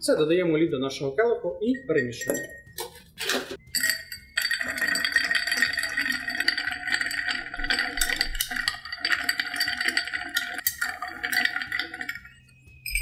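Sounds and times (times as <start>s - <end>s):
ice cubes clinking in glass: 2.1s - 13.0s.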